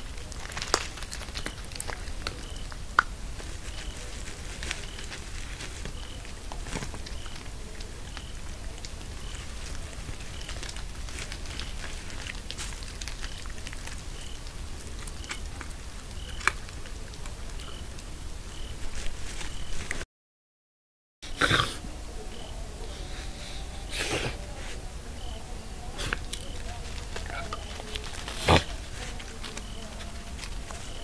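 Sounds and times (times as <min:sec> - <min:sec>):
steady low hum: 0:21.2 - 0:31.0.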